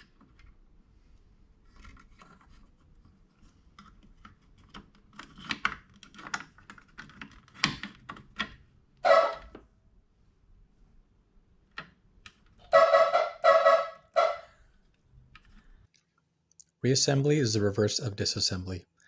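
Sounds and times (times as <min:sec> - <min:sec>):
clicks and rattles of plastic parts: 0:01.6 - 0:08.7.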